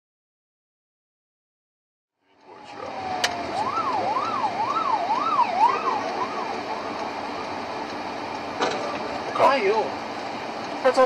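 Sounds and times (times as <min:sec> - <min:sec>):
traffic noise: 0:02.2 - 0:11.0
emergency siren wailing: 0:02.4 - 0:11.0.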